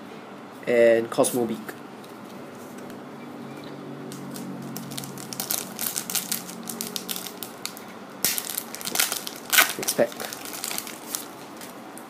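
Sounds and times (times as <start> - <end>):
foil wrapper crinkling: 4.1 - 11.8.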